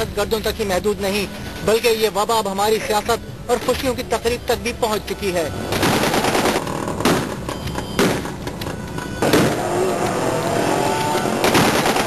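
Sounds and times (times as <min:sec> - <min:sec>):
crowd noise: 0:00.0 - 0:12.0
gunshots: 0:05.7 - 0:08.4, 0:09.2 - 0:09.8, 0:11.2 - 0:12.0
men shouting: 0:09.5 - 0:11.5.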